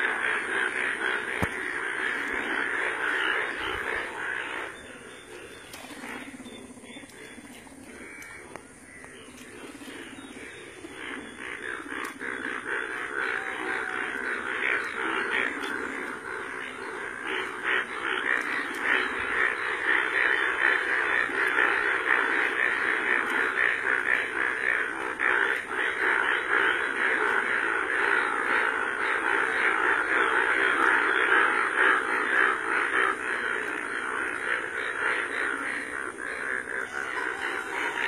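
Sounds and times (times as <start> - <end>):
chorus of frogs croaking: 0.0 - 38.0.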